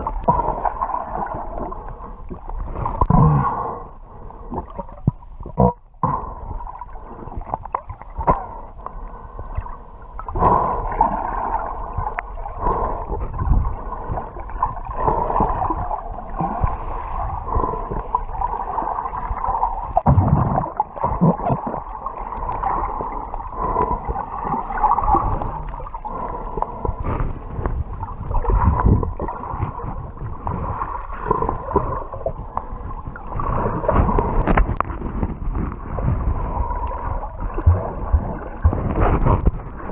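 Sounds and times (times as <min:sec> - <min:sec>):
muffled churning water underwater: 0:00.0 - 0:39.9.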